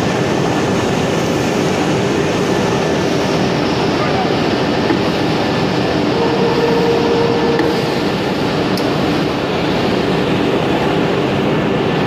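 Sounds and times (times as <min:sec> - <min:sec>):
woodworking machines running: 0:03.5 - 0:08.8.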